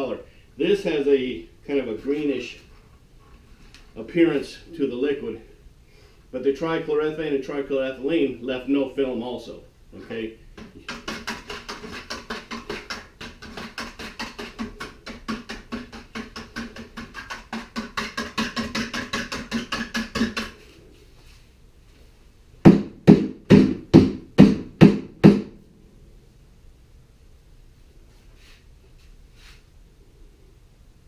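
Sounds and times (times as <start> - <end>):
loud knocks: 22.6 - 25.6.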